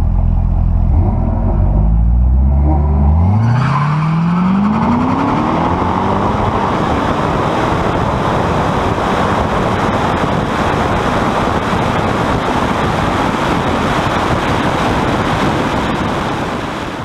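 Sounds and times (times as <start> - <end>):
wind buffeting microphone: 4.7 - 17.0.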